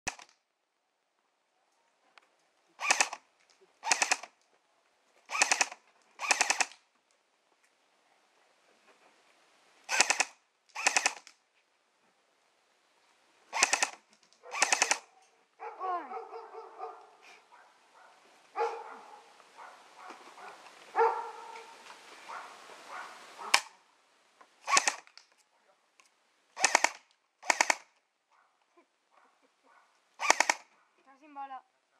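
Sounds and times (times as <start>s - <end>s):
airsoft gun automatic bursts: 2.8s - 3.2s, 3.8s - 4.3s, 5.3s - 6.8s, 9.9s - 11.3s, 13.5s - 15.1s, 24.6s - 25.1s, 26.6s - 27.9s, 30.2s - 30.7s
dog barking and whining: 14.4s - 23.6s.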